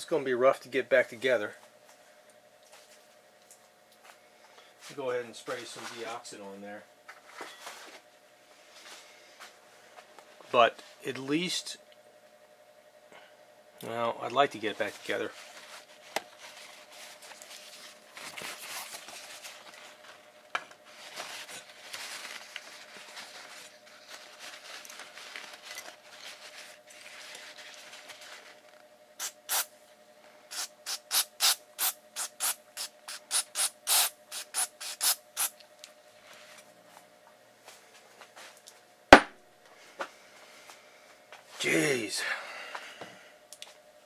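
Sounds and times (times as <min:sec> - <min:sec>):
aerosol spray squirts: 0:29.2 - 0:29.7, 0:30.5 - 0:35.6.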